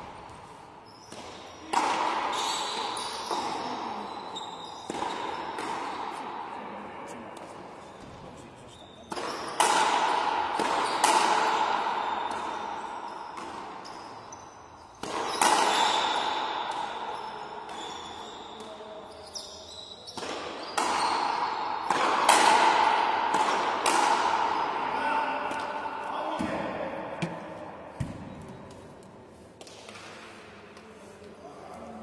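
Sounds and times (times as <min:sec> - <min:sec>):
ball smacking wall echoing: 0:20.1 - 0:24.7, 0:25.4 - 0:28.8
ball hit by rackets: 0:21.9 - 0:24.4, 0:26.4 - 0:28.8.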